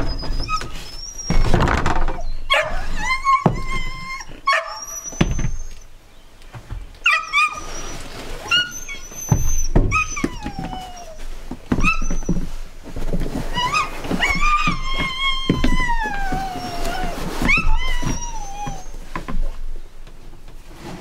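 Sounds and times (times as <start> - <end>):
dog whining and yipping: 0.0 - 6.0, 7.0 - 12.5, 13.4 - 19.2
boots thumping on wooden bench: 1.3 - 4.0.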